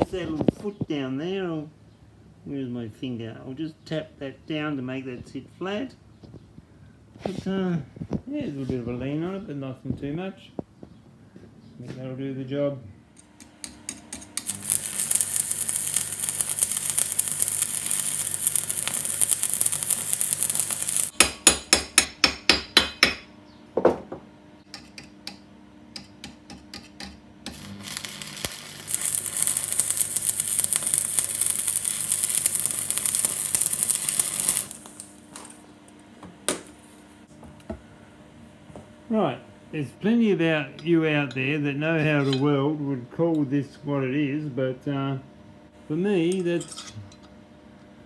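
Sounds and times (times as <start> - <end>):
welding arc crackling and hissing: 14.4 - 21.2, 27.5 - 35.7.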